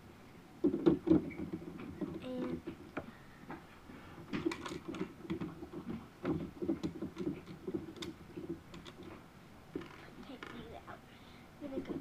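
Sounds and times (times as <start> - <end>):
plastic pieces clicking and rattling: 4.3 - 9.2.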